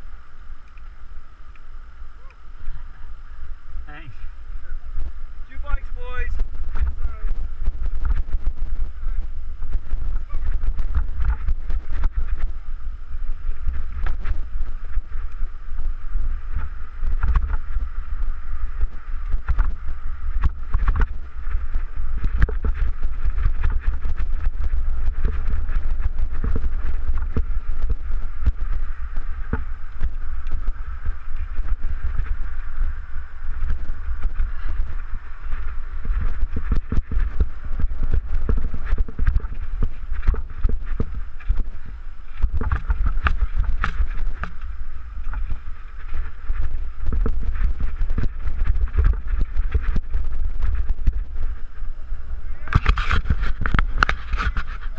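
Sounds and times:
wind buffeting microphone: 0:00.0 - 0:54.9.

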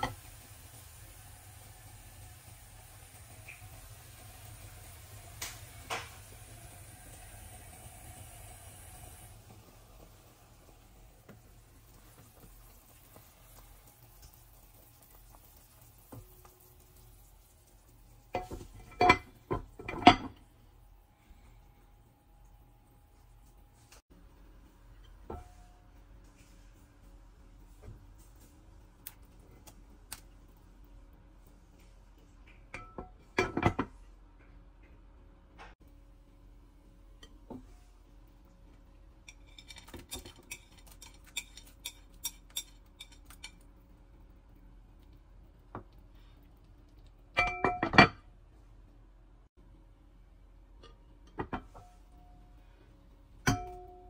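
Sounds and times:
glass lid clinking on metal pot: 0:47.4 - 0:48.2.

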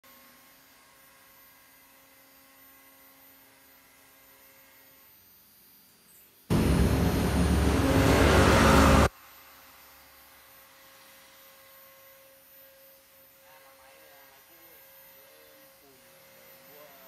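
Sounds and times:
router cutting noise: 0:06.5 - 0:09.1.

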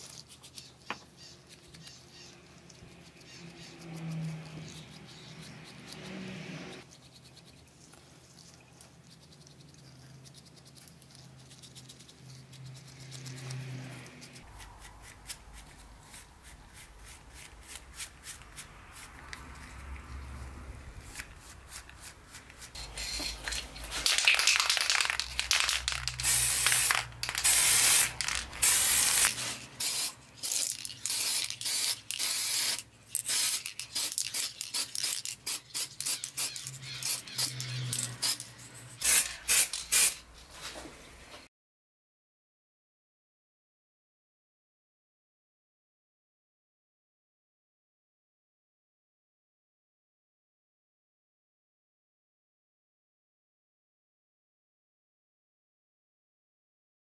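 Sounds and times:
aerosol spray can hissing: 0:24.0 - 0:38.4, 0:39.0 - 0:40.2.

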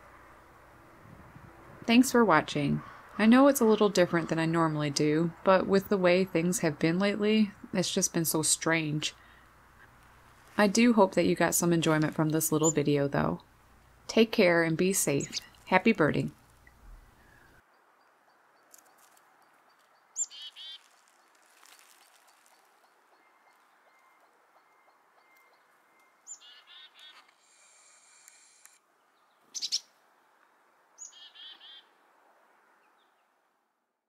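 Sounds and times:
songbird calls: 0:12.5 - 0:12.9, 0:15.1 - 0:15.6, 0:16.6 - 0:21.2, 0:22.1 - 0:27.3, 0:29.2 - 0:29.9, 0:31.0 - 0:32.0.

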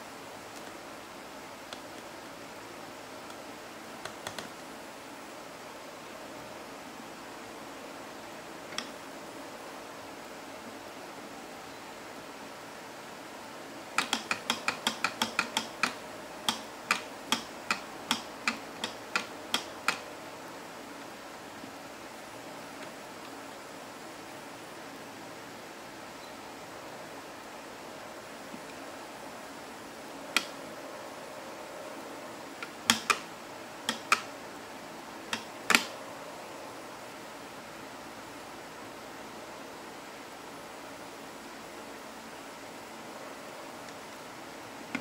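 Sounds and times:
faint steady hiss: 0:00.0 - 0:45.0
plastic gears clicking: 0:14.0 - 0:20.0.

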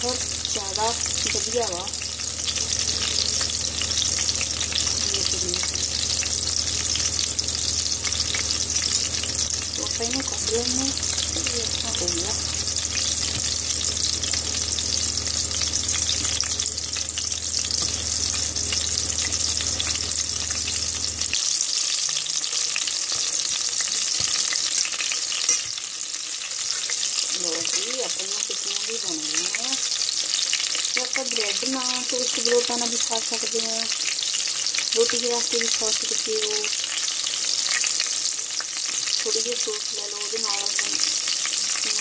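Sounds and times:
low hum: 0:00.0 - 0:21.4
patties sizzling in oil: 0:00.0 - 0:42.0.

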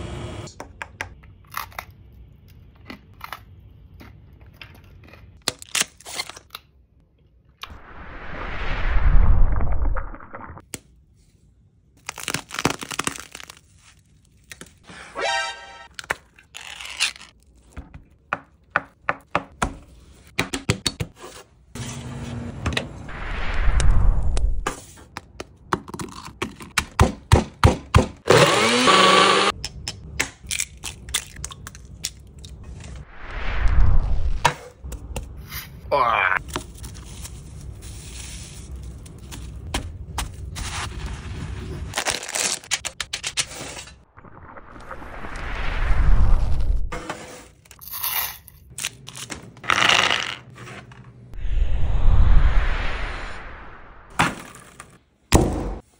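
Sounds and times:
brittle candy crumbling and crackling: 0:12.0 - 0:14.8.

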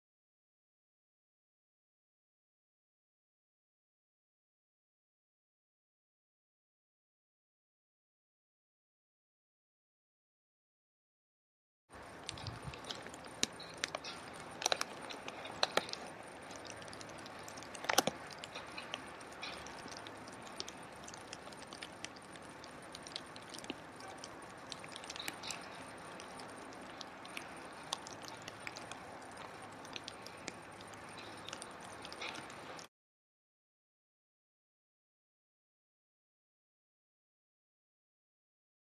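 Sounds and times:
crackles and clicks: 0:11.9 - 0:32.9
steady hiss: 0:12.0 - 0:32.9.

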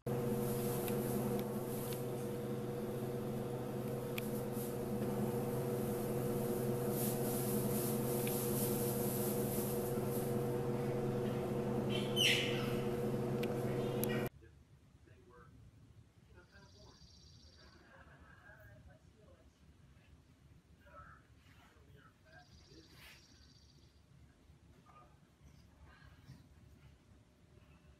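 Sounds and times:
steady mechanical hum: 0:00.0 - 0:14.6
jaguar cub squeaky call: 0:11.9 - 0:12.8.

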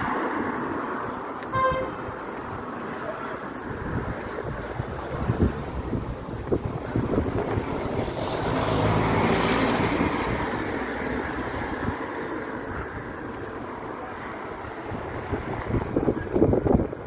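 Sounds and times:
vehicle passing by: 0:03.4 - 0:12.9.

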